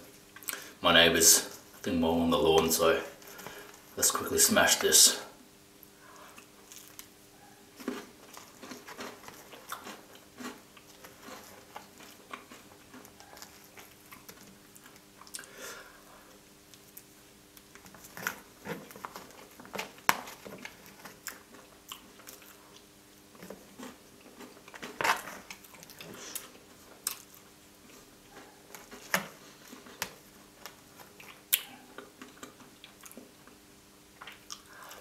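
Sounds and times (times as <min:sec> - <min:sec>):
wet mouth chewing: 0:06.1 - 0:15.5, 0:20.7 - 0:28.9, 0:31.0 - 0:33.6, 0:34.2 - 0:35.0.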